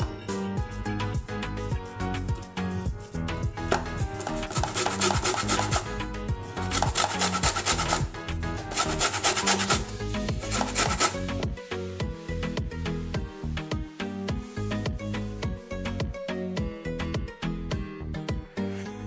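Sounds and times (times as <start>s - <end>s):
background music: 0.0s - 19.0s
lemon rasping on grater: 4.1s - 6.0s, 6.6s - 8.1s, 8.7s - 11.3s.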